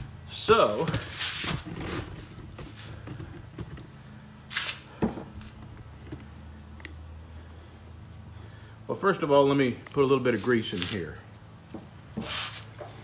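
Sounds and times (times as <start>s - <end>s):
steady low hum: 0.0s - 13.0s
handling scrapes and knocks: 0.5s - 3.9s, 10.2s - 13.0s.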